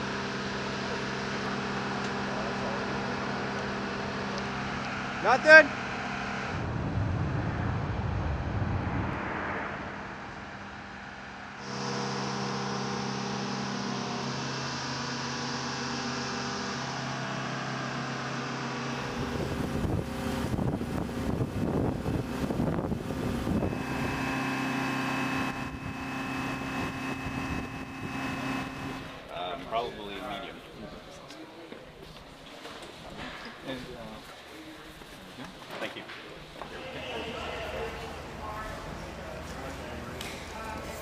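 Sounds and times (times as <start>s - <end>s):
machinery running: 0.0s - 30.4s.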